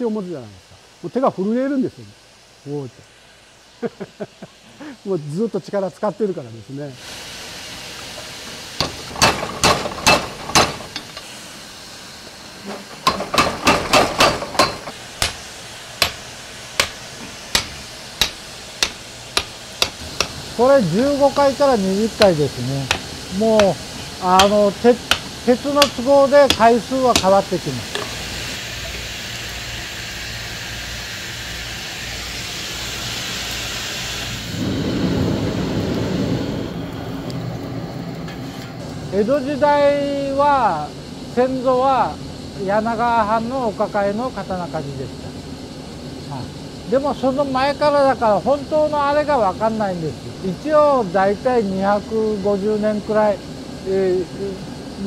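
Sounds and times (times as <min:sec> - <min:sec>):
steady steam hiss: 0:00.0 - 0:55.0
forge fire rushing: 0:07.0 - 0:28.4, 0:32.5 - 0:41.4
power hammer blows on steel: 0:12.8 - 0:20.4, 0:22.1 - 0:28.0.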